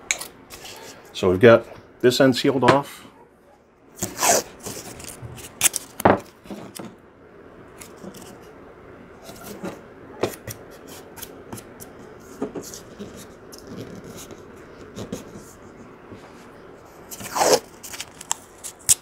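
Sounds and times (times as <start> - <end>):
tape crinkling: 4.0 - 6.0, 17.1 - 19.0
tape ripping off roll: 4.0 - 6.0, 17.1 - 19.0.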